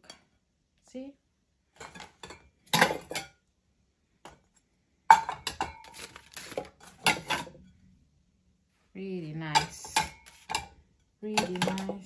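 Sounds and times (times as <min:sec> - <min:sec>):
ceramic plates clattering: 0:01.8 - 0:03.3, 0:05.1 - 0:07.6, 0:09.5 - 0:12.0.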